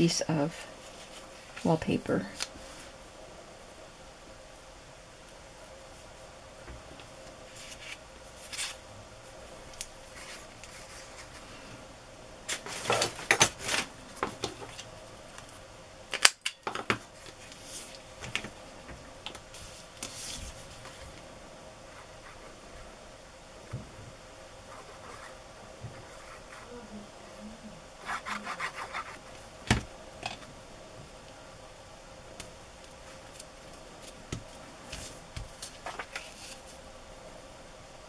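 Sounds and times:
paper rustling and scraping: 0:07.5 - 0:08.8, 0:12.5 - 0:13.9, 0:19.5 - 0:21.2, 0:34.9 - 0:36.8.

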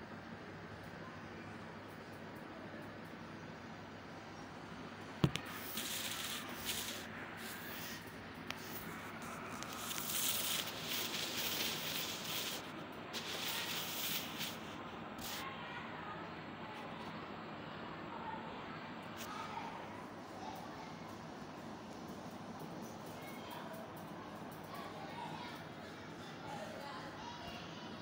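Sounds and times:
soft rustling and rubbing: 0:05.3 - 0:15.4.

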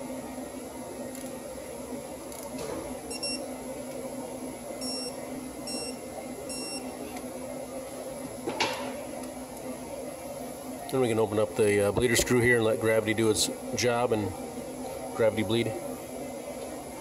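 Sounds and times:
torque wrench high beeps: 0:03.1 - 0:03.4, 0:04.8 - 0:06.8.

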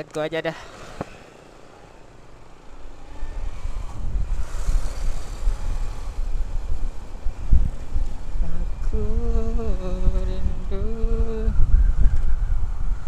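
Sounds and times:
motorcycle riding off: 0:00.6 - 0:11.0
wind on microphone: 0:02.8 - 0:13.0.

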